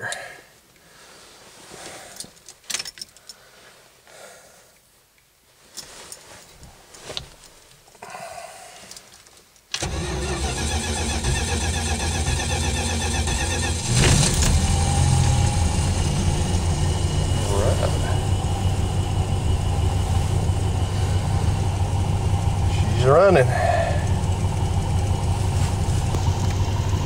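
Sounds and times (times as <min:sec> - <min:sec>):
car engine cranking and starting: 0:09.7 - 0:27.0.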